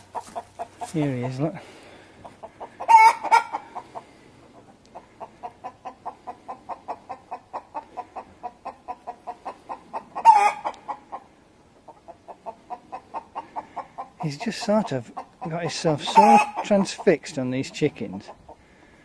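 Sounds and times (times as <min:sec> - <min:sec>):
hen alarm clucks: 0:00.0 - 0:19.0
hen squawk: 0:02.8 - 0:03.8, 0:15.2 - 0:17.0.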